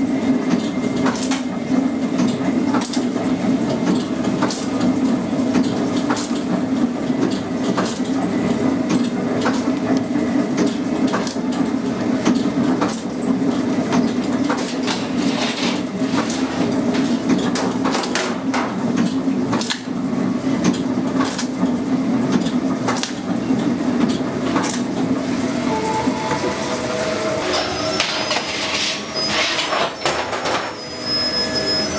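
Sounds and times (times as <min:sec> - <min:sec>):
machinery drone: 0:25.0 - 0:31.9.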